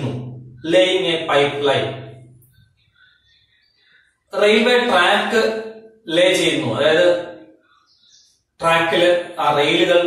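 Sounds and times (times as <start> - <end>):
man talking: 0.0 - 2.1, 4.4 - 5.5, 6.1 - 7.3, 8.6 - 10.0
faint bird chirps: 0.5 - 4.8, 7.5 - 9.1.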